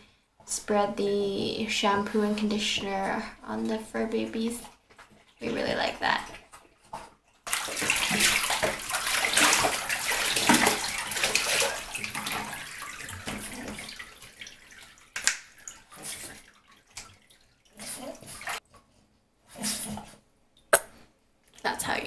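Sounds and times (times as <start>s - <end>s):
water splashing: 2.5s - 18.6s.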